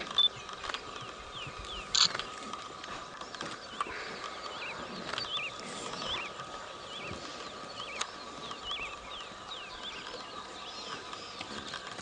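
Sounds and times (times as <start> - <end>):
small clicks: 1.8 - 6.5.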